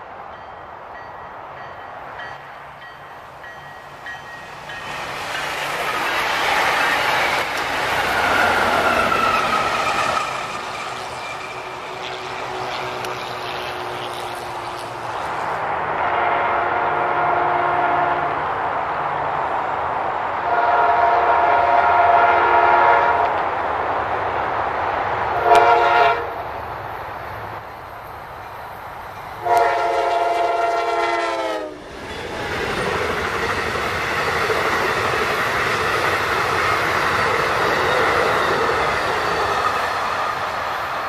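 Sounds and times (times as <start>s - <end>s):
train wheels clattering on rails: 0.4s - 15.3s, 31.8s - 41.0s
train air horn blasts: 16.0s - 18.4s, 20.4s - 23.4s, 25.4s - 26.4s, 29.4s - 31.8s.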